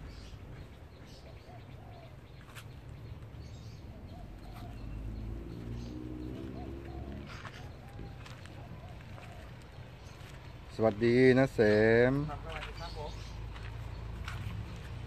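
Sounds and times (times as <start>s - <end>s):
doves cooing: 0.0s - 10.7s.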